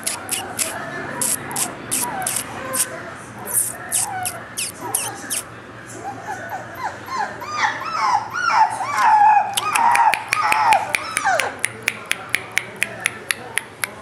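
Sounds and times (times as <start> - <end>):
sharp high clicks: 0.0 - 2.9, 9.6 - 14.0
puppy whimpering: 0.0 - 5.4, 6.0 - 11.6
puppy howling yelps: 0.3 - 5.4, 6.0 - 11.5.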